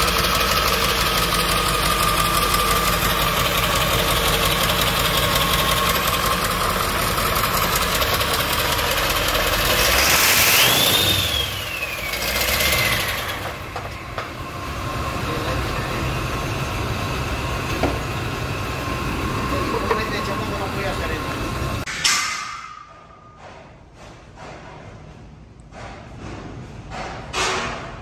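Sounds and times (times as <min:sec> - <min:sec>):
diesel engine idling: 0:00.0 - 0:21.9
rising and falling whistle: 0:09.9 - 0:13.5.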